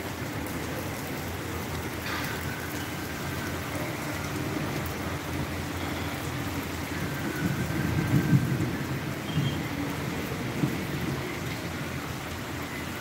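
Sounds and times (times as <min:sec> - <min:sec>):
rain on wet paving: 0:00.0 - 0:13.0.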